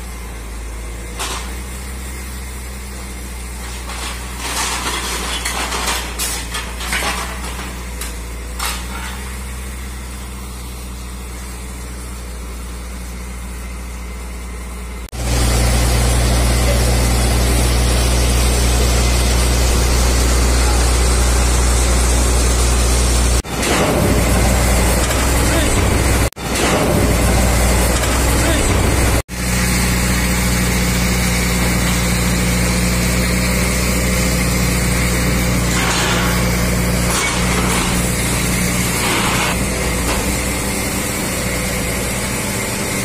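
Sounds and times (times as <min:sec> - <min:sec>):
diesel truck engine running: 0:00.0 - 0:43.0
metal scrap clanking and rattling: 0:01.1 - 0:01.8, 0:03.2 - 0:09.8, 0:23.4 - 0:29.2, 0:34.4 - 0:43.0.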